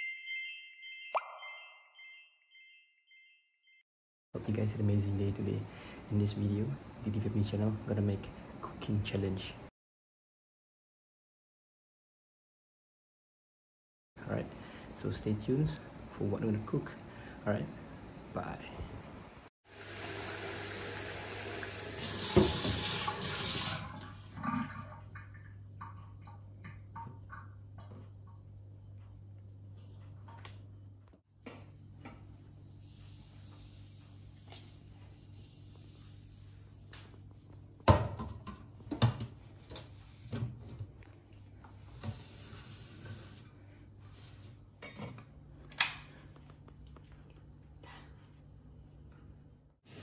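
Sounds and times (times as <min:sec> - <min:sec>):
tap water running into sink: 0:19.7 - 0:28.0.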